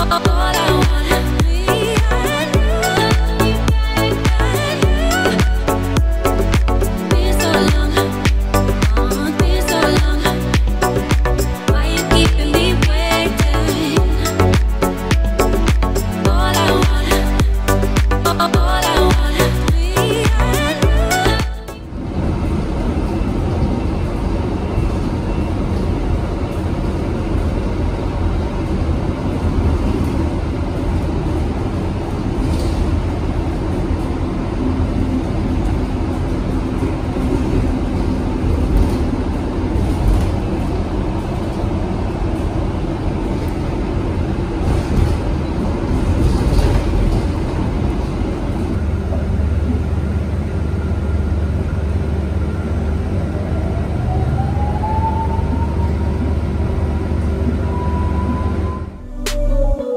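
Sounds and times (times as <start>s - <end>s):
low hum: 0.0s - 59.9s
road and tyre rumble: 21.3s - 59.1s.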